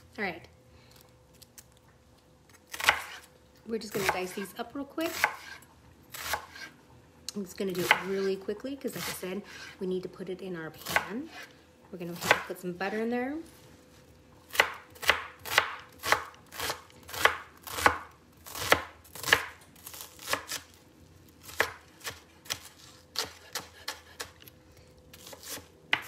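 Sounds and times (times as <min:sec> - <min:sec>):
knife chopping on plastic board: 0:21.5 - 0:24.4.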